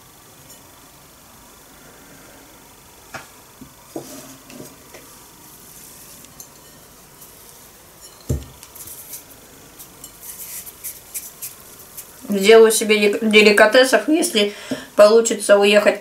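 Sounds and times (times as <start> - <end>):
crackling rustle of rolling in nuts: 0.0 - 14.4
light knocks and clinks on plates: 8.0 - 8.6.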